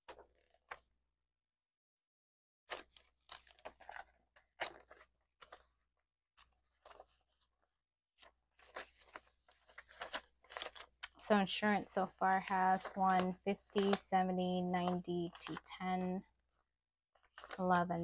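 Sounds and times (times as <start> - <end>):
paper banknotes rustling: 2.7 - 5.8, 6.4 - 11.0, 12.4 - 18.0.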